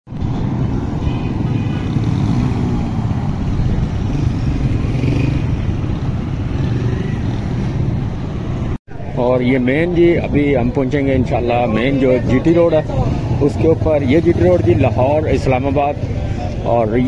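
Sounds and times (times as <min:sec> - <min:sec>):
motorcycle engines running: 0:00.2 - 0:08.8, 0:09.7 - 0:17.0
motorcycle rickshaws running: 0:00.2 - 0:08.8, 0:09.7 - 0:17.0.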